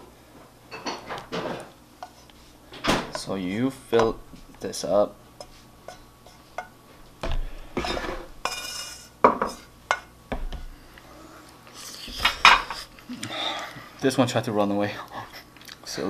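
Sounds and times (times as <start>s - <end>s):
chopsticks scraping a pan: 2.0s - 2.5s, 5.4s - 6.7s, 7.8s - 10.1s.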